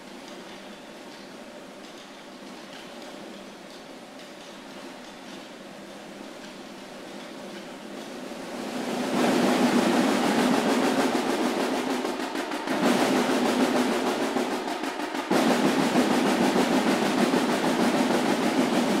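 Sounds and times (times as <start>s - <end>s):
massed snare drum roll: 6.0s - 19.0s.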